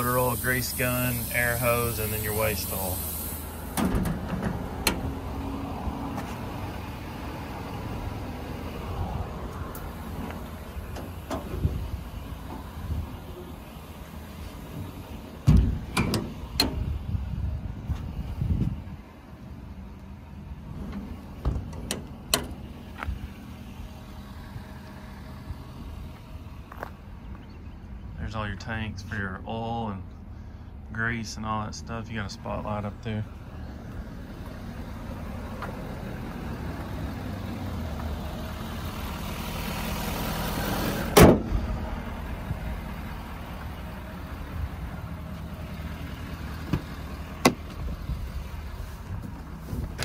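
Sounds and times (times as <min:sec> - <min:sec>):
truck engine idling: 0:00.0 - 0:50.0
toolbox door shutting and latching: 0:03.8 - 0:05.1, 0:15.4 - 0:16.8, 0:21.4 - 0:22.6, 0:41.2 - 0:41.5.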